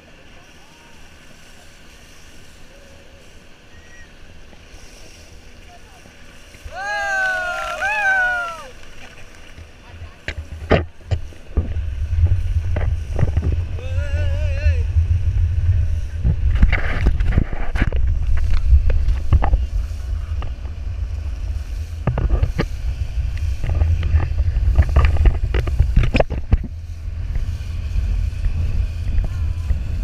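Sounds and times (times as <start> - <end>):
water splashes: 0.0 - 30.0
wind buffeting microphone: 9.6 - 30.0.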